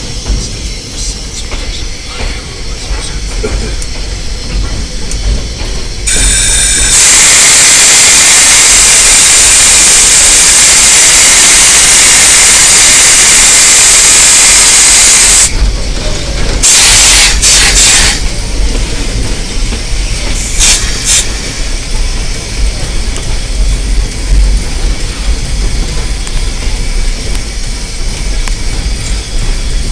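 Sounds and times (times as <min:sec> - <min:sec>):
steam hissing loudly: 0:00.7 - 0:15.7, 0:16.6 - 0:24.0
short bursts of steam: 0:06.1 - 0:15.5, 0:16.6 - 0:18.2, 0:20.4 - 0:21.8.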